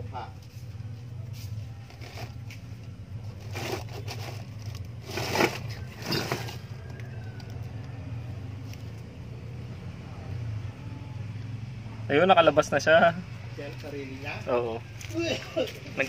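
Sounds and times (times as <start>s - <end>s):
plastic basin scraping over concrete: 1.9s - 2.5s, 3.2s - 7.1s.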